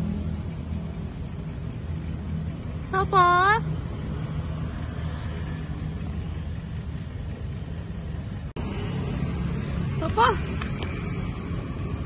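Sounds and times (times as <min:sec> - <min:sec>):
street traffic hum: 0:00.0 - 0:12.0.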